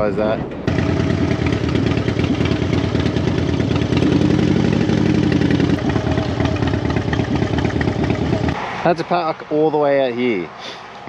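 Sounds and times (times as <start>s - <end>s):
motorcycle engine pulsing: 0.7s - 8.6s.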